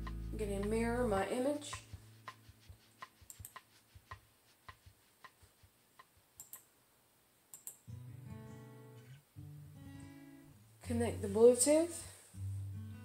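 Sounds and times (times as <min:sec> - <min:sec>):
acoustic guitar music: 0:00.0 - 0:03.0, 0:07.8 - 0:13.0
laptop clicking: 0:03.0 - 0:05.4, 0:06.0 - 0:06.7, 0:07.5 - 0:07.8.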